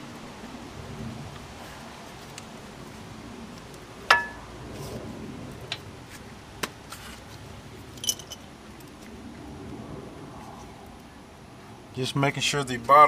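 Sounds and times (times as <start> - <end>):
metal brake parts clinking: 8.0 - 8.4.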